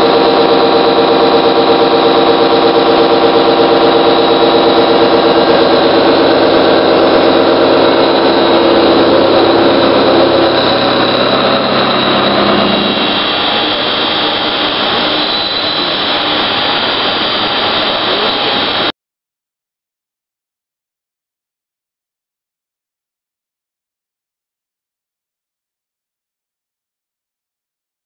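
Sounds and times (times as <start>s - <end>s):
machine hum of steady tones: 0.0s - 18.9s
milling machine cutting metal: 0.0s - 18.9s.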